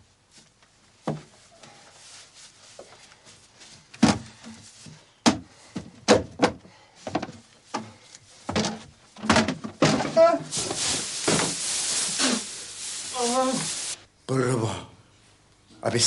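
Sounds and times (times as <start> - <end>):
footsteps on wooden boards: 2.8 - 10.3.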